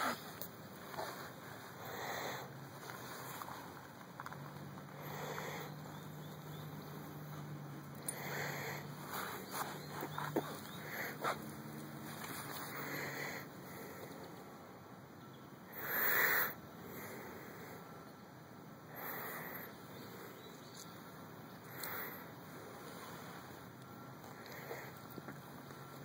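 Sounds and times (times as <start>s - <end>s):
dog sniffing: 8.1s - 13.2s.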